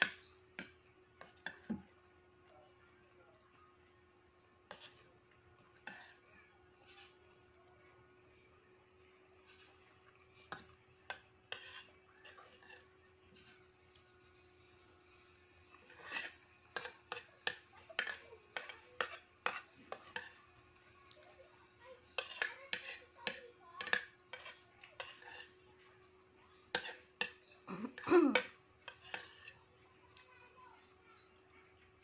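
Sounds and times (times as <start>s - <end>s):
spoon scraping ceramic plate: 0.0s - 1.9s, 4.7s - 5.1s, 5.8s - 6.2s, 10.4s - 13.5s, 15.7s - 20.6s, 22.1s - 25.6s, 26.7s - 29.7s.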